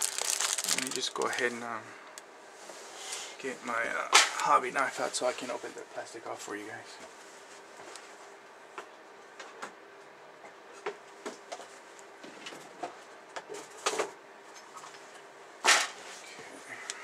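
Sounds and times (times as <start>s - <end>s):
plastic bag crinkling: 0.0s - 1.7s.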